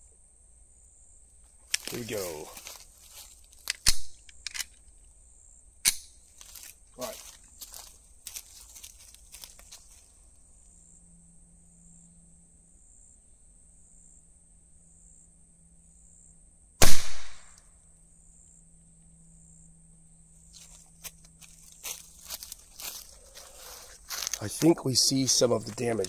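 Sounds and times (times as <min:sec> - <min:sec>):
faint high-pitched buzz: 0:05.0 - 0:16.8
rifle shot: 0:16.8 - 0:17.6.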